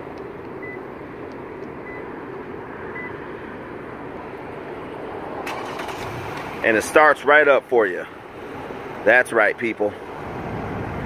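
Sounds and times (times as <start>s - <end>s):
outdoor background noise: 0.0s - 11.0s
car engine cranking and starting: 5.4s - 6.7s.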